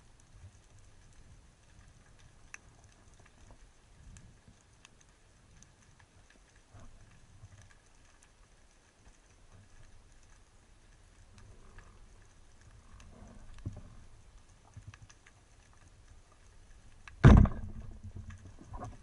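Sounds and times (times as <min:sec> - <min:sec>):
faint underwater clicks and crackles: 0:00.0 - 0:19.0
speargun shot underwater: 0:17.1 - 0:18.8.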